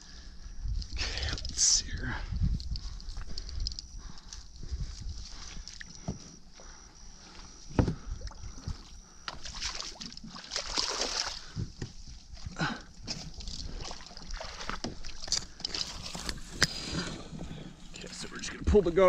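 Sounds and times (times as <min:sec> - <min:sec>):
fish thrashing in water: 0:09.3 - 0:11.7, 0:12.4 - 0:16.5.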